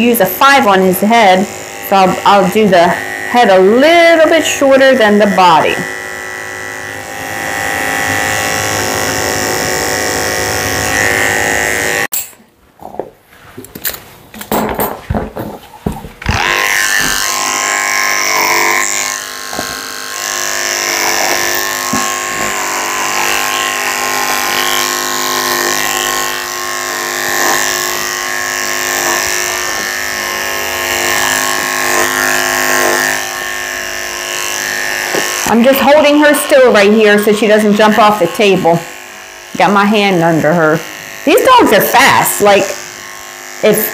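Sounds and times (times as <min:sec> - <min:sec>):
electric clippers humming: 0:00.0 - 0:13.0, 0:14.4 - 0:43.9.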